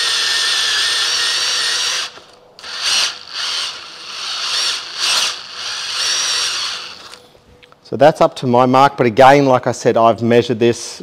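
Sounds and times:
cordless drill boring metal: 0:00.0 - 0:07.2.

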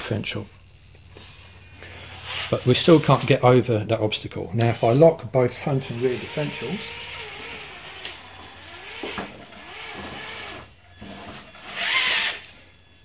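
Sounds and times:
electric motor and gears whining: 0:00.0 - 0:13.0
rasping burst: 0:05.6 - 0:12.7.

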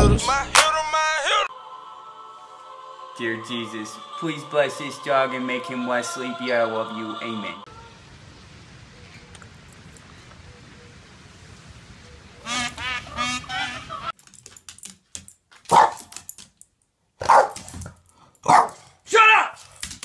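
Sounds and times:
faint outdoor noise: 0:01.5 - 0:14.6
dog barking: 0:15.7 - 0:16.1, 0:17.2 - 0:17.7, 0:18.4 - 0:19.0.

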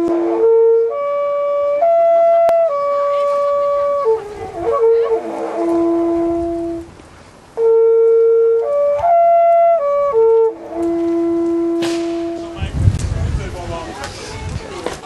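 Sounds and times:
wooden horn long notes: 0:00.0 - 0:07.0, 0:07.6 - 0:12.8.

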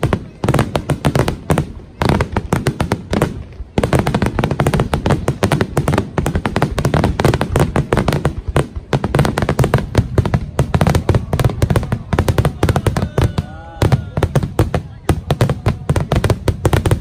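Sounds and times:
fireworks bangs and crackles: 0:00.0 - 0:17.0.

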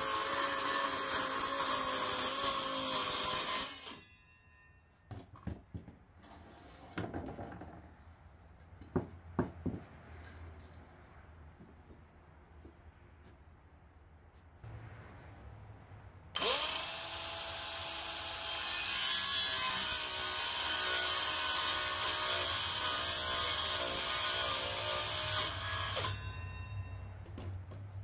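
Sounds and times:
saw cutting through plywood: 0:00.0 - 0:04.1, 0:16.4 - 0:26.4.

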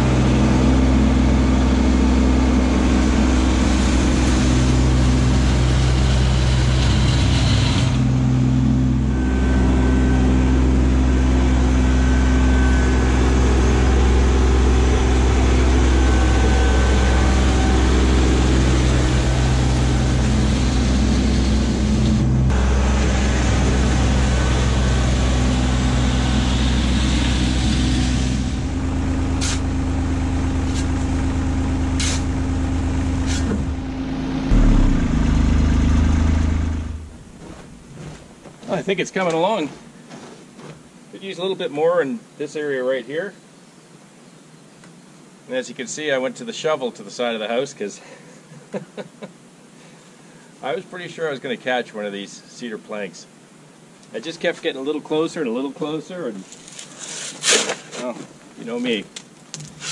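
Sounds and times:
diesel tractor engine running: 0:00.0 - 0:38.8
shovel scraping gravel: 0:29.4 - 0:29.7, 0:30.6 - 0:31.0, 0:32.0 - 0:32.3, 0:33.2 - 0:33.6, 0:56.3 - 0:59.0, 0:59.6 - 0:59.9.

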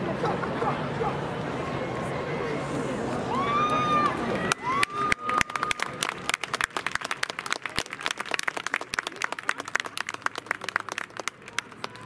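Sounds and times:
crowd applauding: 0:03.3 - 0:12.0.

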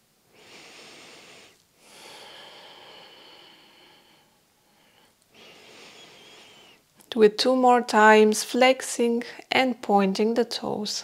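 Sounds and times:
woman breathing: 0:00.3 - 0:06.9.

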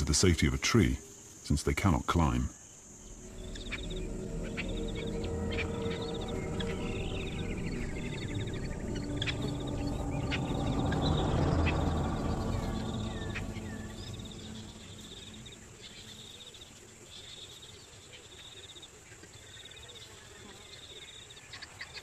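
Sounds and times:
insects trilling: 0:00.0 - 0:22.0
low dense rumble: 0:03.0 - 0:16.4.

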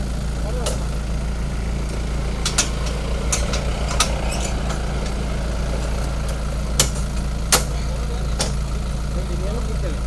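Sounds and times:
truck engine idling: 0:00.0 - 0:10.0
sharp knocks: 0:06.8 - 0:07.8.

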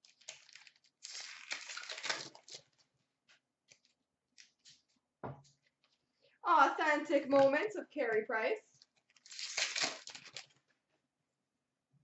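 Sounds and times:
trading cards rustling: 0:08.8 - 0:10.6.

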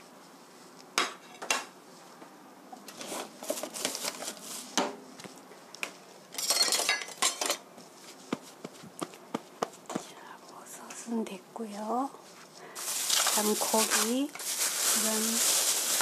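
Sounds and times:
dishes and cutlery clattering: 0:06.3 - 0:07.6.

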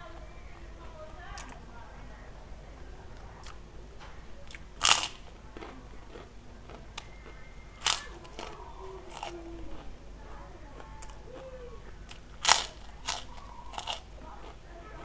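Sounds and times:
cracker crunching: 0:03.1 - 0:15.0
chewing crunches: 0:03.2 - 0:03.7, 0:04.4 - 0:15.0.

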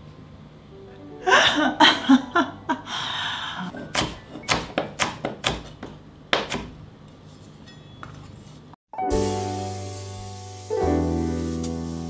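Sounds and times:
knife chopping on wooden board: 0:03.8 - 0:06.8.

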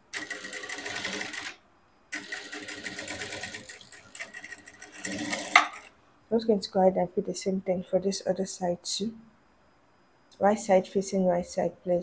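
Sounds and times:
sewing machine stitching: 0:00.1 - 0:05.9.

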